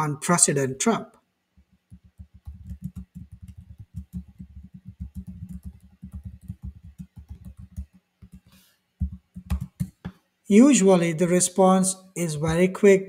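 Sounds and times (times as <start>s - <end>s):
fast typing on keyboard: 1.7s - 10.1s.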